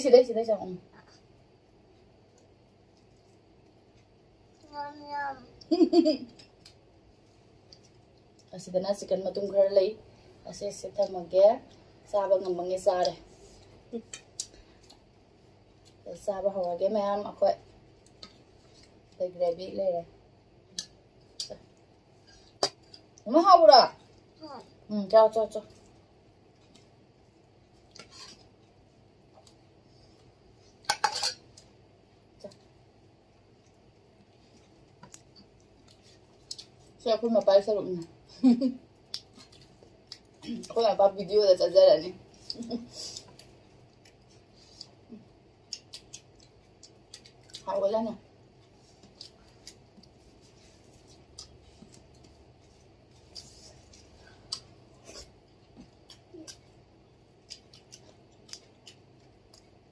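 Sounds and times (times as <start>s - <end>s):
metal spoon clinking on dishes: 30.9s - 31.4s
mouth clicks and smacks chewing: 45.6s - 47.6s, 57.4s - 59.8s.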